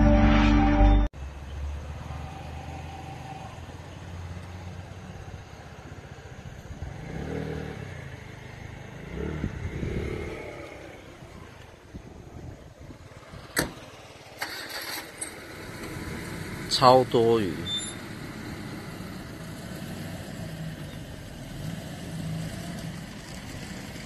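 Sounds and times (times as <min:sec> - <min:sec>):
loud intro music: 0:00.0 - 0:01.1
vehicle engine passing: 0:01.2 - 0:24.0.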